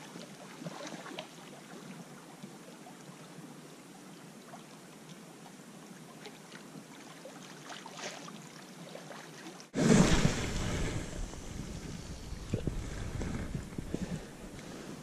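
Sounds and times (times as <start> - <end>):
waves lapping among rocks: 9.3 - 15.0
wind rushing on microphone: 9.8 - 15.0.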